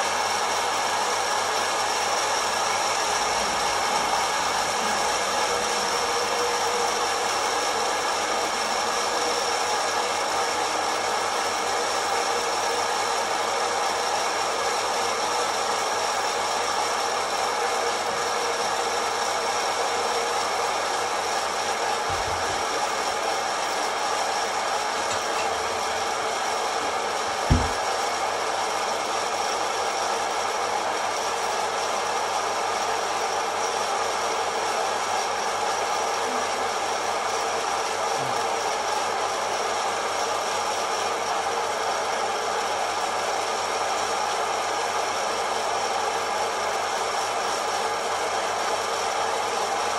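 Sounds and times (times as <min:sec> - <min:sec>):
coffee roaster fan whooshing: 0:00.0 - 0:49.9
brief low thump: 0:27.5 - 0:27.8.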